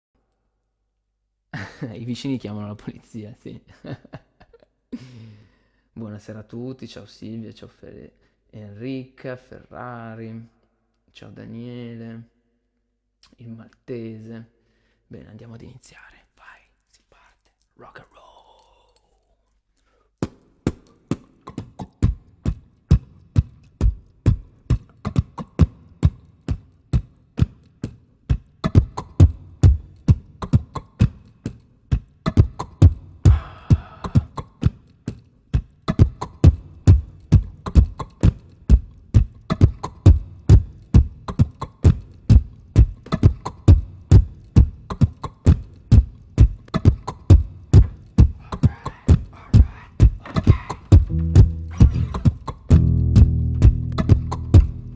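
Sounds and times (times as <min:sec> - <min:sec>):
beatboxed drum loop: 0:20.7 - 0:54.9.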